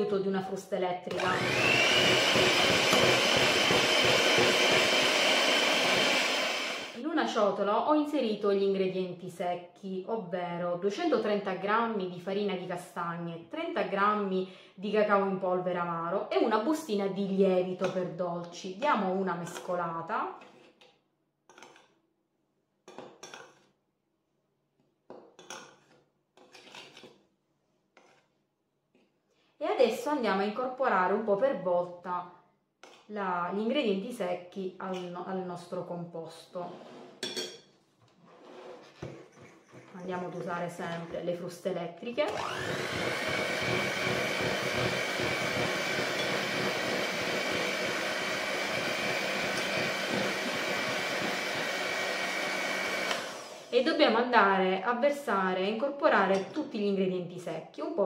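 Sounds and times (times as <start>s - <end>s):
electric hand mixer running: 1.1s - 7.0s, 42.3s - 53.8s
spoon scraping glass bowl: 25.4s - 27.2s, 28.0s - 28.4s, 38.3s - 41.1s.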